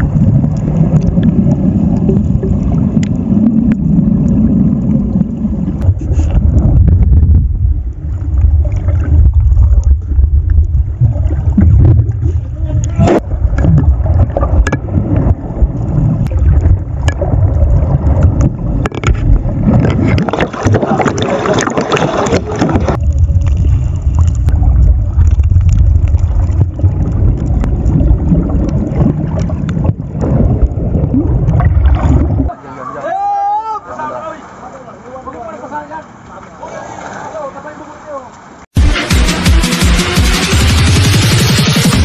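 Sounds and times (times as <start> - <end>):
swirling bubbling water: 0.0 - 32.8
underwater rumble and rushing water: 0.0 - 33.0.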